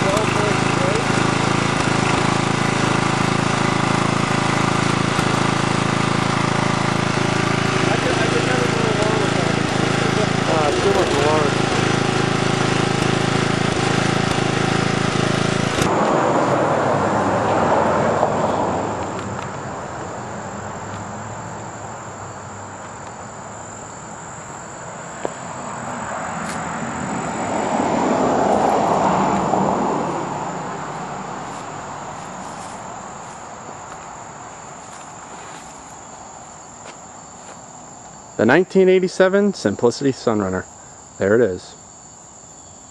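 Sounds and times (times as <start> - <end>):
crickets chirring: 0.0 - 15.0, 16.0 - 42.9
lawn tractor engine running: 0.0 - 36.1
rushing noise: 15.6 - 21.9, 25.5 - 33.7.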